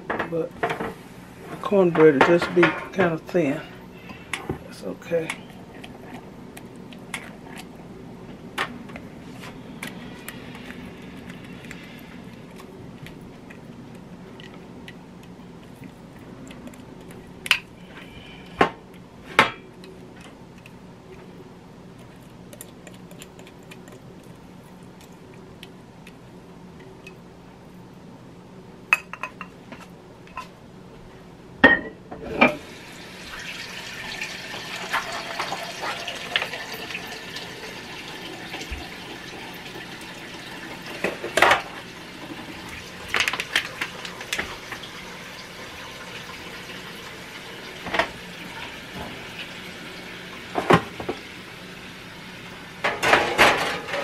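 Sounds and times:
faint steady hum: 0:00.0 - 0:54.0
pans and utensils clinking: 0:52.8 - 0:54.0.

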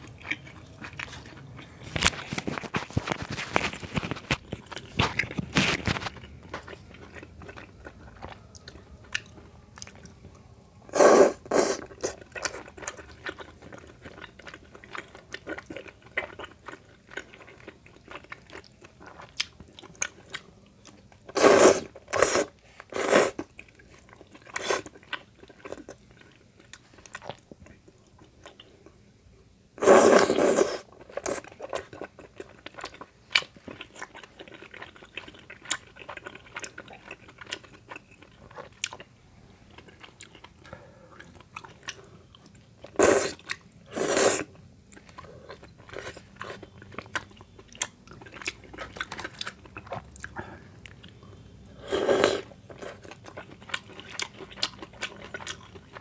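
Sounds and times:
wet chewing with clicks: 0:30.9 - 0:39.1, 0:52.6 - 0:56.0.

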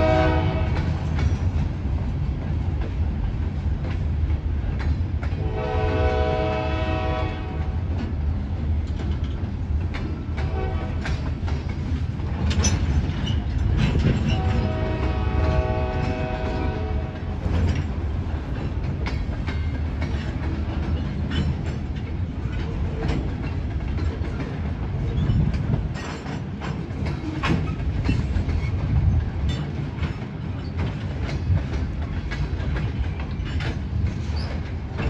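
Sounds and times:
train horn chord: 0:00.0 - 0:00.9, 0:05.4 - 0:07.8, 0:10.4 - 0:11.1, 0:14.3 - 0:17.4
freight train rumbling past: 0:00.0 - 0:35.0
steel wheels clanking on rail joints: 0:00.0 - 0:35.0.

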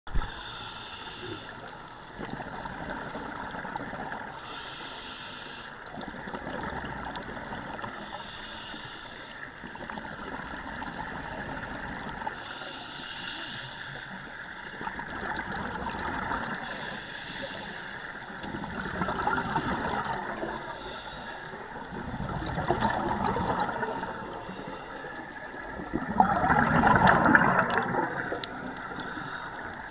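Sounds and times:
regulator hissing inhale: 0:00.1 - 0:02.4, 0:04.3 - 0:06.2, 0:07.7 - 0:09.7, 0:12.1 - 0:14.7, 0:16.4 - 0:18.5, 0:19.6 - 0:22.0, 0:23.6 - 0:25.7, 0:27.8 - 0:29.9
bubbling exhales: 0:14.8 - 0:17.0, 0:18.3 - 0:29.9.

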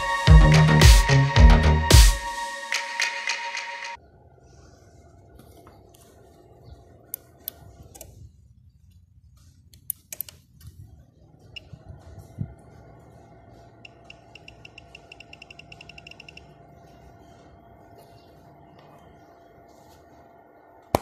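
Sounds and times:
electronic music: 0:00.0 - 0:04.0
low hum: 0:00.0 - 0:21.0.

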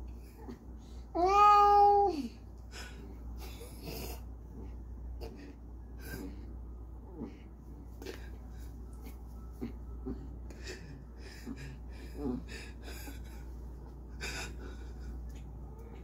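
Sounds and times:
cat moaning: 0:01.2 - 0:02.4.

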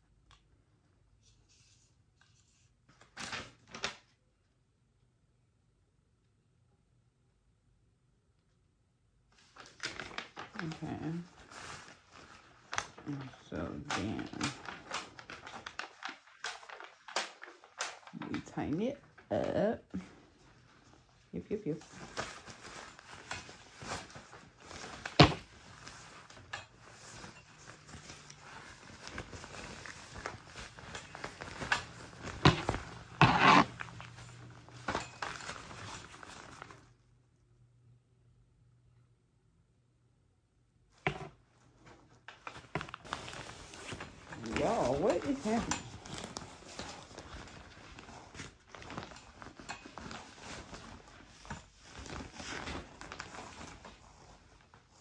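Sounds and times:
fabric scraping rustle: 0:20.0 - 0:37.0, 0:41.6 - 0:55.0.

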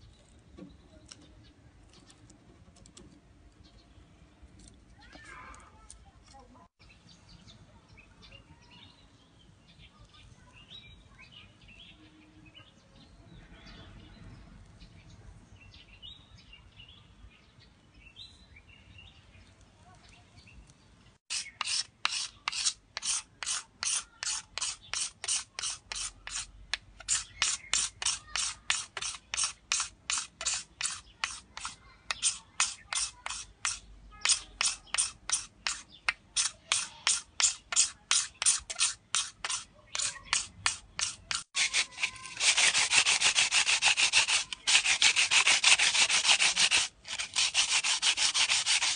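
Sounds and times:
blade scraping bamboo cane: 0:21.3 - 0:48.9.

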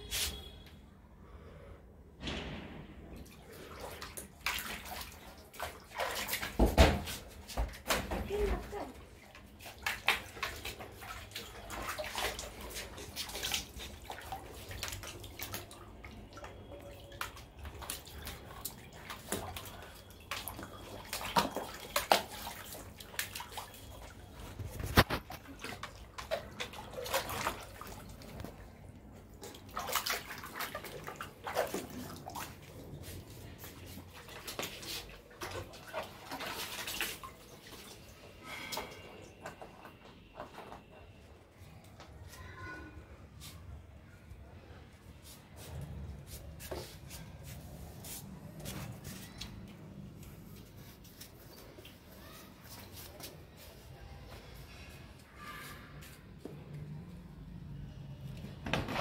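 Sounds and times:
water splashing in a plastic tub: 0:02.3 - 0:41.3.

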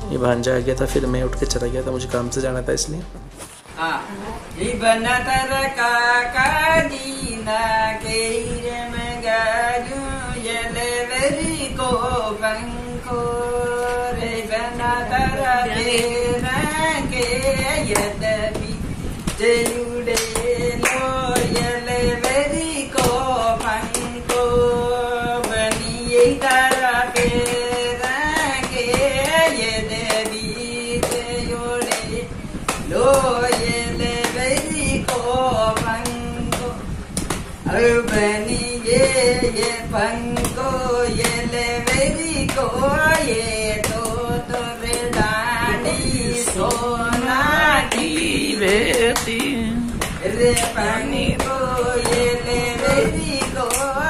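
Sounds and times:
woman singing: 0:03.8 - 0:54.0
hand claps: 0:15.8 - 0:16.2, 0:17.2 - 0:54.0.

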